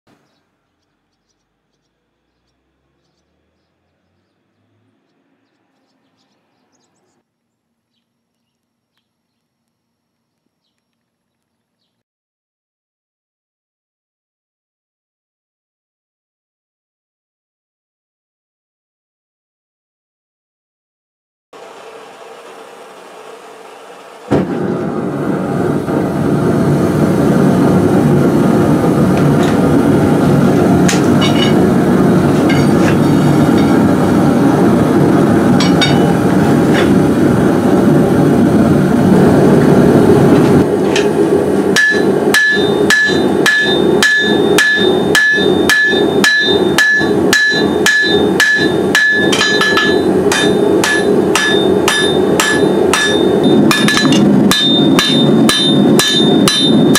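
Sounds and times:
gas forge burner roaring: 21.6s - 56.9s
hammer ringing on anvil: 30.9s - 31.7s, 32.4s - 33.9s, 35.6s - 36.2s, 41.8s - 56.9s.

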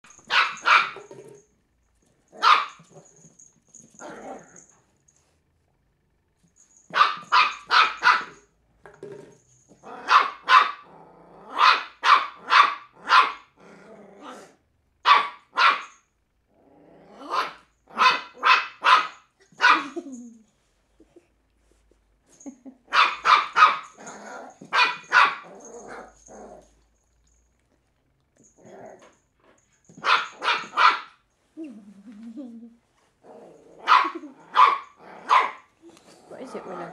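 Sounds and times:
puppy barking: 0.1s - 1.1s, 2.4s - 3.0s, 6.9s - 8.4s, 10.0s - 10.9s, 11.5s - 13.5s, 15.0s - 16.0s, 17.3s - 20.0s, 22.9s - 24.0s, 24.6s - 26.1s, 30.0s - 31.2s, 33.8s - 35.7s.

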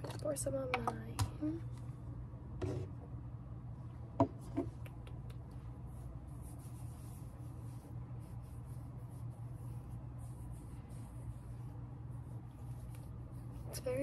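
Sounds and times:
low steady hum: 0.0s - 14.0s
cotton pad rubbing skin: 5.8s - 14.0s.

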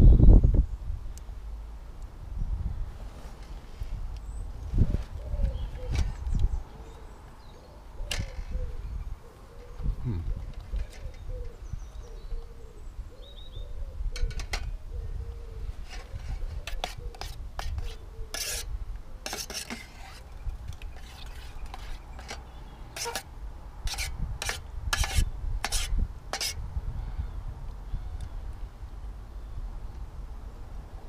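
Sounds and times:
spoon scraping metal saucepan: 15.9s - 23.3s, 23.9s - 26.6s.

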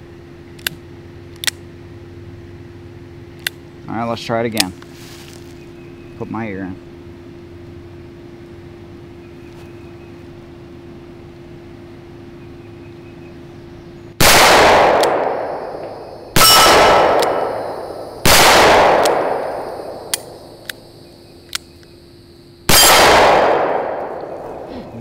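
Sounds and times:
revolver shots echoing: 14.2s - 20.6s, 22.7s - 24.8s
light clicks: 21.4s - 22.0s.

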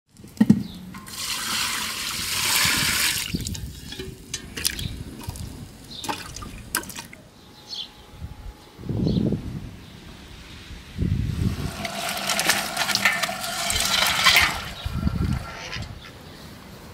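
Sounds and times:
water pouring into pot: 1.1s - 5.4s, 11.4s - 15.5s.

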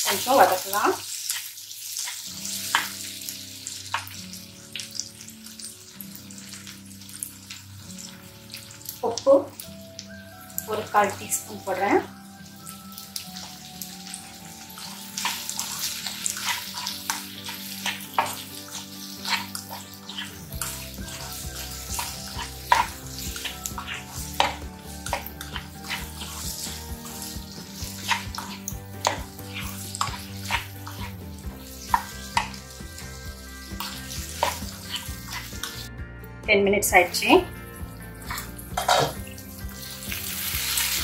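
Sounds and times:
light frying sizzle: 0.0s - 35.9s, 37.2s - 41.0s
plastic spatula scraping a pan: 15.2s - 31.3s.

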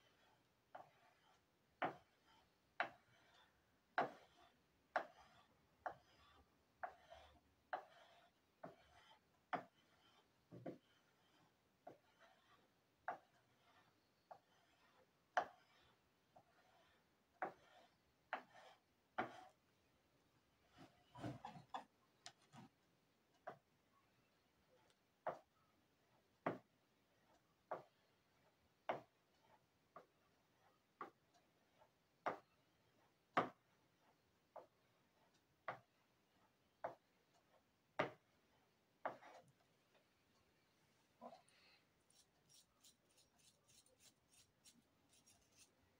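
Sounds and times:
hand tool scraping wax: 0.0s - 19.6s, 41.2s - 45.8s.

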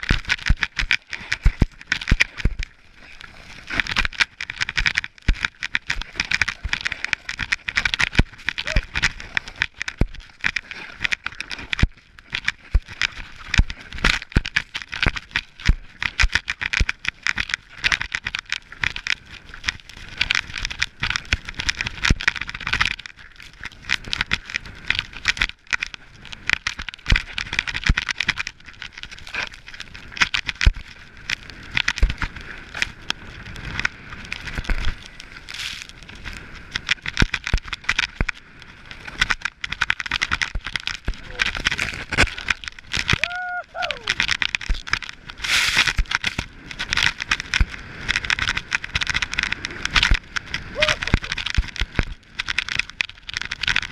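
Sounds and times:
wind noise on microphone: 0.0s - 53.9s
snow crunching under skis: 28.5s - 53.9s.

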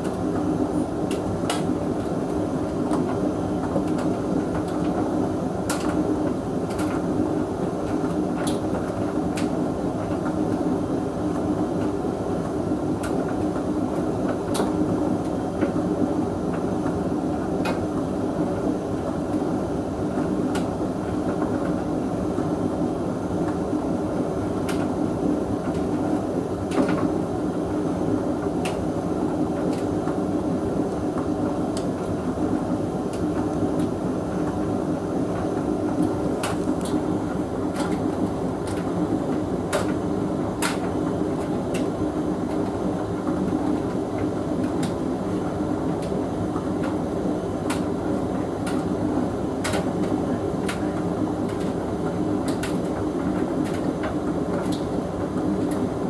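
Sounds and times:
tumble dryer humming: 22.7s - 56.0s.

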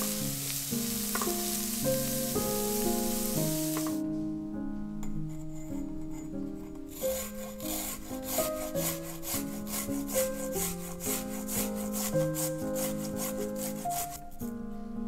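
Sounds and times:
garlic rasping on a grater: 6.9s - 14.2s.

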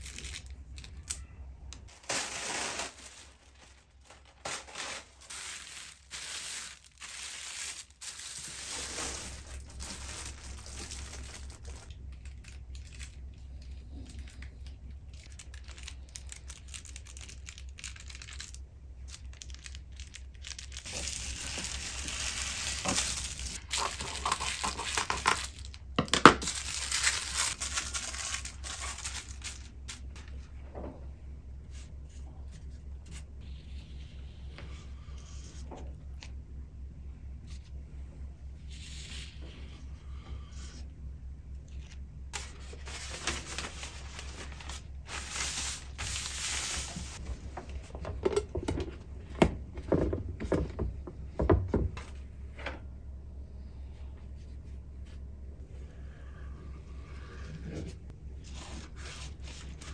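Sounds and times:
plastic bags crinkling: 0.0s - 1.2s, 1.8s - 13.5s, 14.1s - 30.2s, 42.4s - 47.2s
steady low hum: 0.0s - 59.9s.

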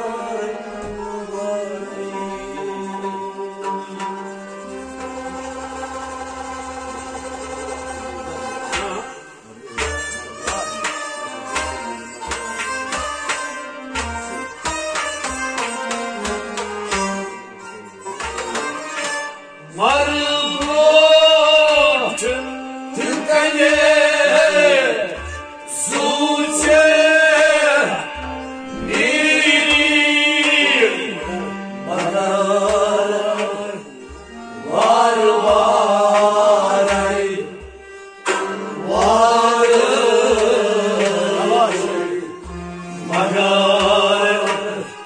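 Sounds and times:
man singing: 0.0s - 4.0s, 19.6s - 28.1s, 28.7s - 37.6s, 38.4s - 45.0s
low drum beats: 28.7s - 30.0s.

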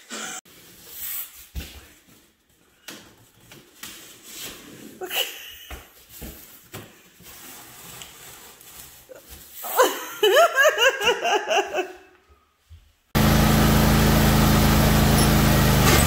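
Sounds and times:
riding mower engine humming: 13.2s - 16.0s.

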